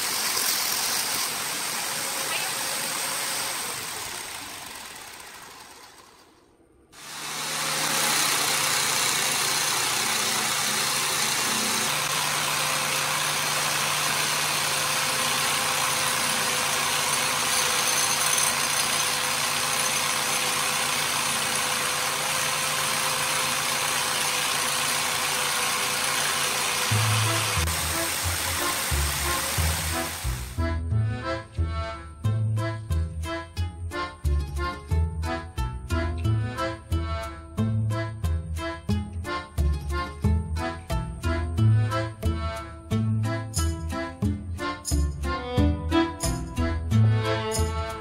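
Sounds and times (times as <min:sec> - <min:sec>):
angle grinder sanding steel: 0:00.0 - 0:06.3, 0:07.0 - 0:30.6.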